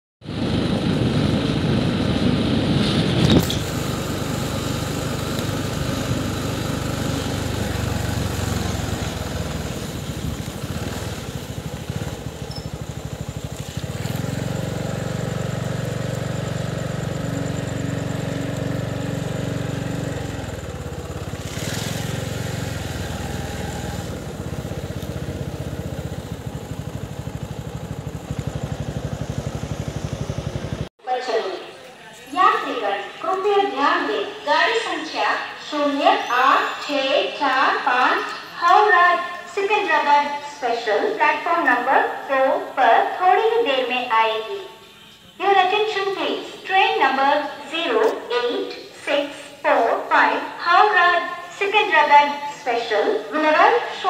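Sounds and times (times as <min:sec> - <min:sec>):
small vehicle engine running: 0:00.2 - 0:30.9.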